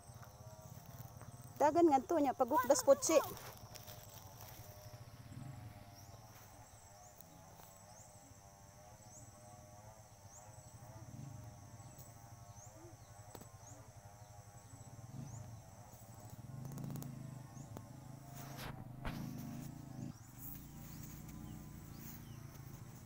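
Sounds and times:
insects buzzing: 0:00.0 - 0:23.0
insect rising chirp: 0:14.6 - 0:23.0.

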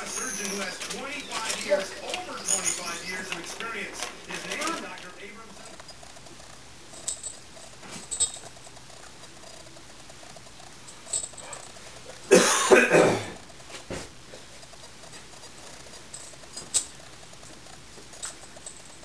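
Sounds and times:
puppies scuffling: 0:00.0 - 0:12.3.

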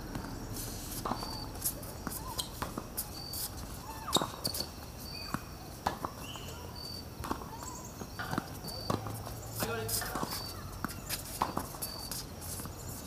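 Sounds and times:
tennis balls struck by rackets: 0:00.0 - 0:12.8
tennis balls bouncing on court: 0:00.0 - 0:13.0
faint high chirps: 0:01.1 - 0:05.5, 0:06.2 - 0:08.0.

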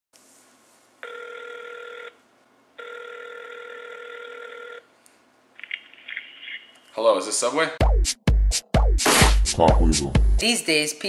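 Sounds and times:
phone ringback tone: 0:01.0 - 0:02.2, 0:02.8 - 0:04.9.

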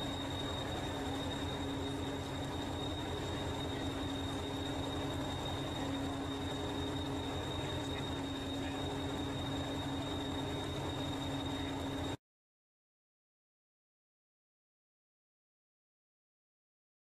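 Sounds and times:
constant low hum: 0:00.0 - 0:12.2
thin high whine: 0:00.0 - 0:12.2.

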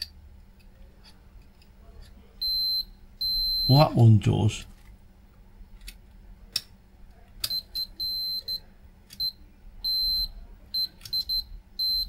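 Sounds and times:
multimeter continuity beeps: 0:02.4 - 0:04.0, 0:07.4 - 0:12.0.

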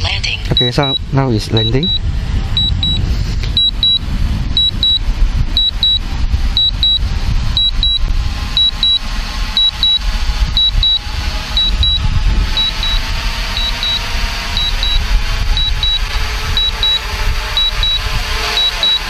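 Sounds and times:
wind buffeting on microphone: 0:00.0 - 0:18.6
remote controller short high beeps: 0:00.6 - 0:01.0, 0:01.6 - 0:02.0, 0:02.6 - 0:03.0, 0:03.6 - 0:04.0, 0:04.6 - 0:05.0, 0:05.6 - 0:06.0, 0:06.6 - 0:07.0, 0:07.6 - 0:08.0, 0:08.6 - 0:09.0, 0:09.6 - 0:10.0, 0:10.6 - 0:11.0, 0:11.6 - 0:12.0, 0:12.6 - 0:13.0, 0:13.6 - 0:14.0, 0:14.6 - 0:15.0, 0:15.6 - 0:16.0, 0:16.6 - 0:17.0, 0:17.6 - 0:18.0, 0:18.6 - 0:19.0.

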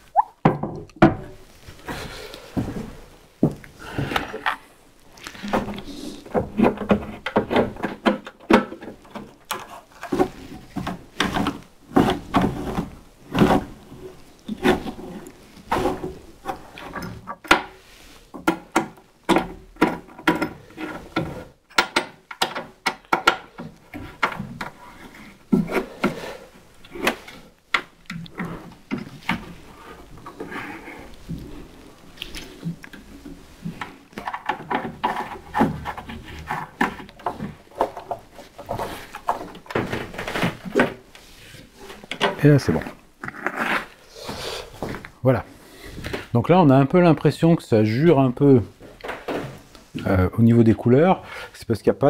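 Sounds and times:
wood knocking and clacking: 0:00.4 - 0:04.6, 0:05.3 - 0:26.2, 0:26.8 - 0:41.2, 0:41.9 - 0:43.0.

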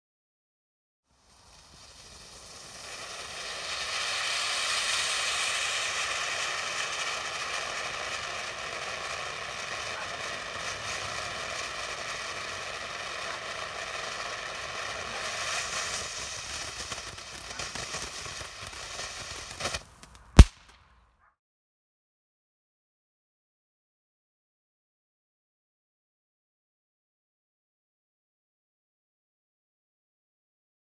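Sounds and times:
fountain firework hissing: 0:01.1 - 0:20.5.

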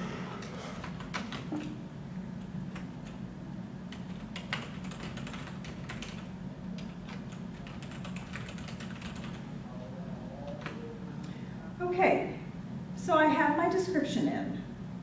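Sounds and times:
steady low hum: 0:00.0 - 0:15.0
typing on keyboard: 0:03.9 - 0:09.4.

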